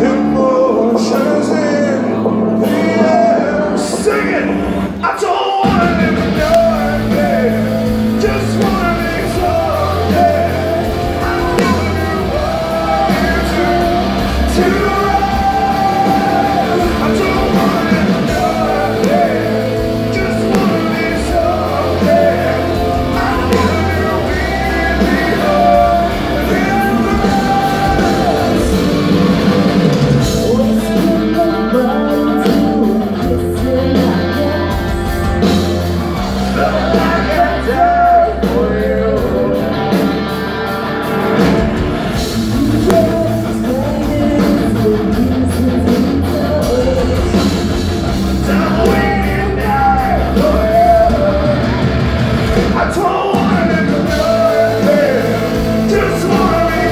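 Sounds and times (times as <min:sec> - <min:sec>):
man and woman singing duet: 0:00.0 - 0:40.1, 0:42.2 - 0:56.9
live rock band playing: 0:00.0 - 0:56.9.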